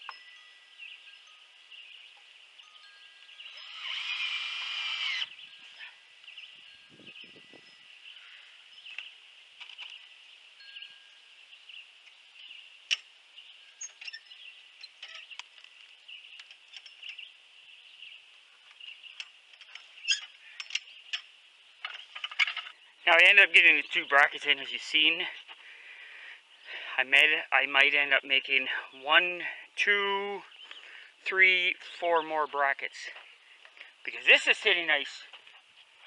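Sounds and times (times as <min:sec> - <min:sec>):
cordless drill driving screw: 0:03.5 - 0:05.3.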